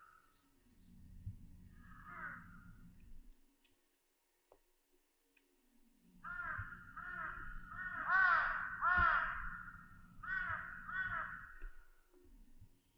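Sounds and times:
crow cawing: 0:01.8 - 0:02.6, 0:06.2 - 0:11.8.

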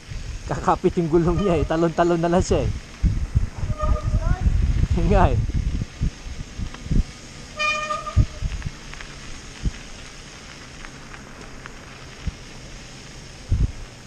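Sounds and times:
wind noise on microphone: 0:00.0 - 0:11.2, 0:11.9 - 0:12.7, 0:13.3 - 0:14.0
bike tyres on snow: 0:00.0 - 0:14.0
low thumps from bumps: 0:02.5 - 0:08.8.

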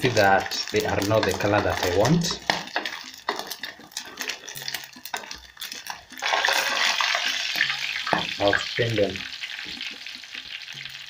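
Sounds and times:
fish sizzling in hot oil: 0:00.0 - 0:11.0
spoon scraping pot: 0:00.4 - 0:08.4.

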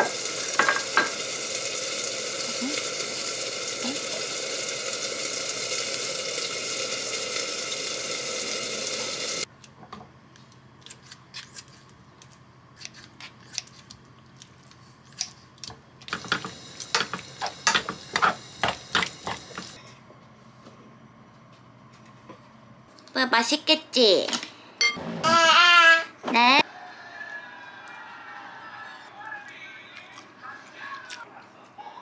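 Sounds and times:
meat sizzling in a pan: 0:00.0 - 0:09.5.

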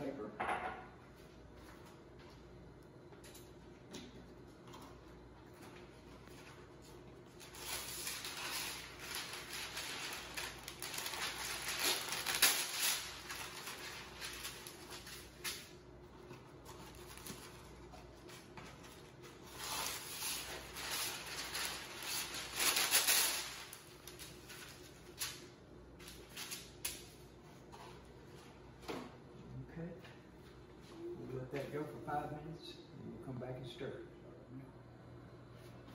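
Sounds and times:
parchment paper crinkling: 0:06.2 - 0:27.1.

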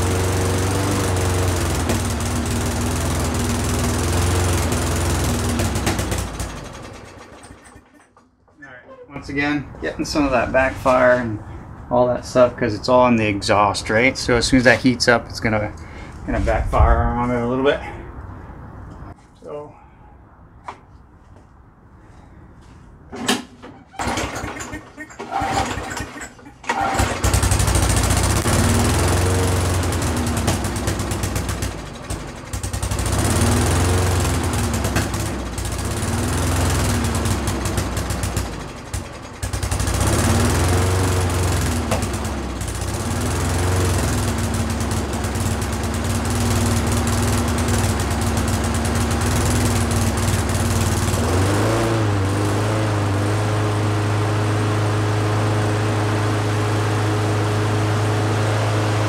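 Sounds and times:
lawn mower engine running: 0:00.0 - 0:08.3, 0:23.2 - 0:59.0.

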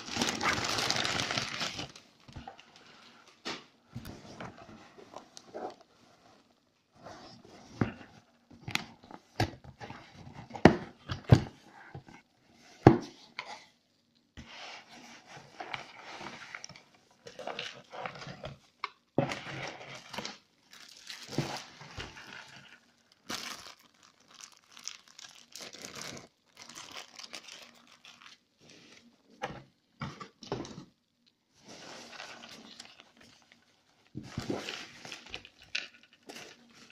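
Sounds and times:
packaging crinkling and rustling: 0:00.0 - 0:03.4, 0:15.6 - 0:31.0, 0:31.6 - 0:36.9.

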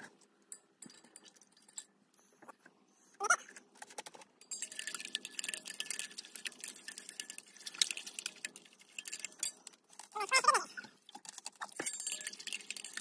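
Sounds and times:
glass rod clinking in beaker: 0:04.4 - 0:10.1, 0:11.2 - 0:13.0.

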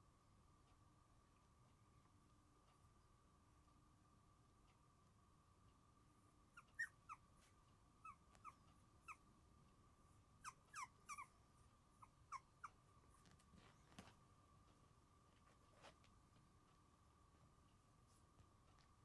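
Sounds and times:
puppies squeaking and whimpering: 0:06.6 - 0:07.2, 0:10.4 - 0:11.3.

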